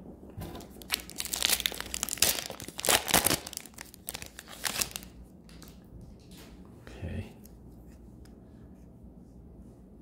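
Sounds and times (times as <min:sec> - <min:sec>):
foil wrapper crinkling and tearing: 0:00.6 - 0:05.7.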